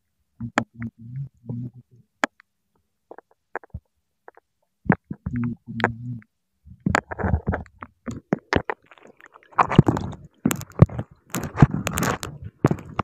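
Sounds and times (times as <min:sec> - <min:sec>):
seawater sloshing underwater: 0:08.2 - 0:13.0.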